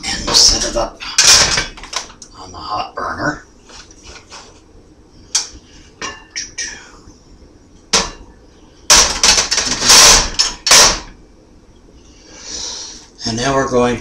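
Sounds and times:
metal clattering and scraping: 0:08.9 - 0:11.1.

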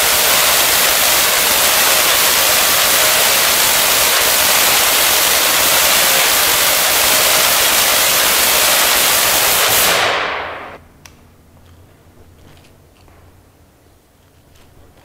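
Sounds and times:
electric arc crackling hiss: 0:00.0 - 0:10.8.

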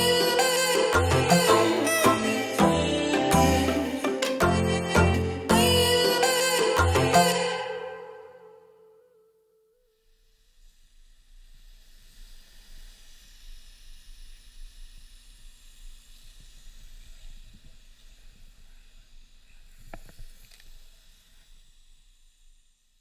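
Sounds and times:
steady hissing noise: 0:00.0 - 0:03.0, 0:09.9 - 0:23.0.

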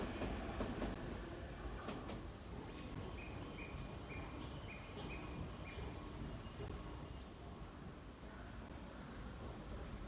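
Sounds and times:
train rumbling: 0:00.0 - 0:08.0.

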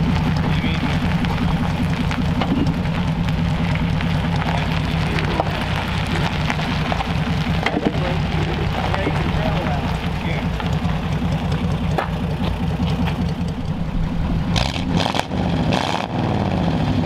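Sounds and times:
car engine idling: 0:00.0 - 0:15.8.

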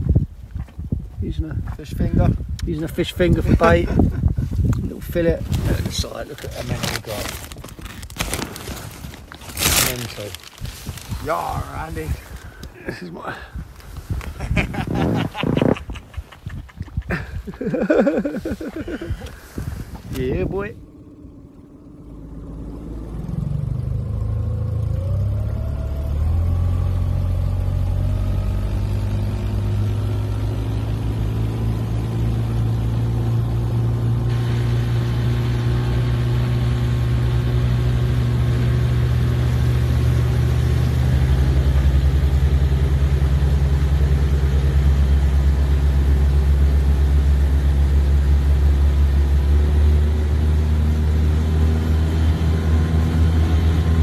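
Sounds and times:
outboard motor running: 0:34.0 - 0:54.0.

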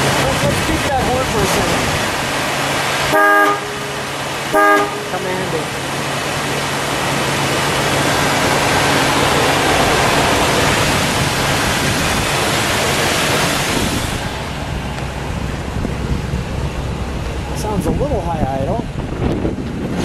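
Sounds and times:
car engine idling: 0:00.0 - 0:19.8
loud even rushing hiss: 0:05.2 - 0:20.0.

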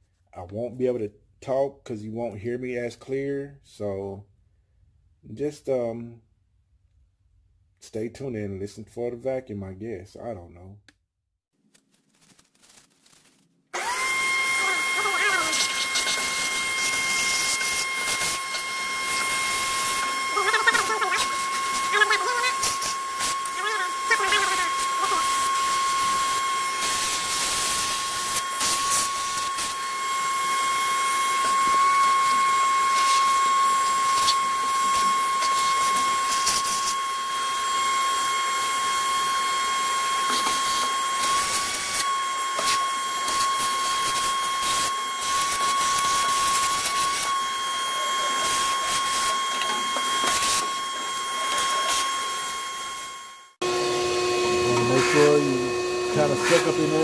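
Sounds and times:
shop vacuum whining: 0:13.8 - 0:57.0.

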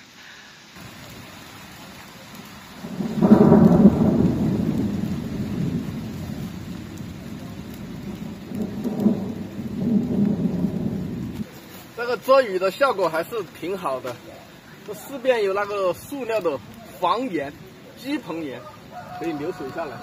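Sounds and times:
steady falling rain: 0:00.0 - 0:20.0
thunder rumbling: 0:00.8 - 0:13.5.

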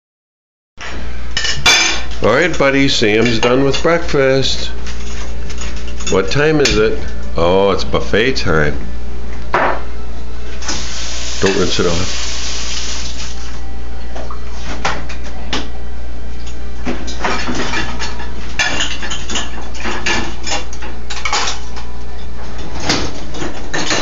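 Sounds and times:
dishes clattering: 0:16.9 - 0:21.9, 0:22.6 - 0:24.0.

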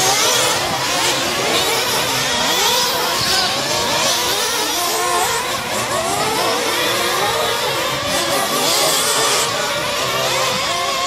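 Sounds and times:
rc truck engines revving: 0:00.0 - 0:11.0.

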